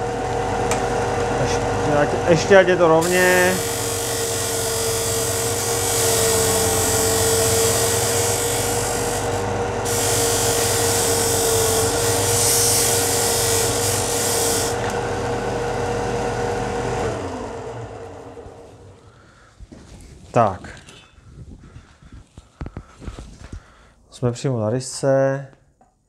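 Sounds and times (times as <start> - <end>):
sander motor hum: 0.0 - 19.5
wood being sanded: 3.0 - 14.8.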